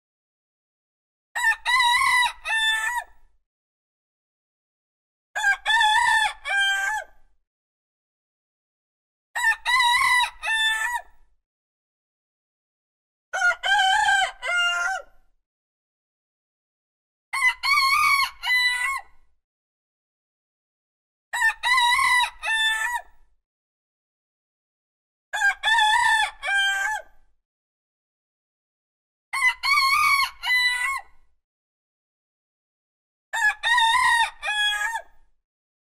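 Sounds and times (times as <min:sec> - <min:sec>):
rooster crowing: 0:05.4 - 0:07.1, 0:13.4 - 0:15.2, 0:25.4 - 0:27.1, 0:29.4 - 0:31.0, 0:33.4 - 0:35.1.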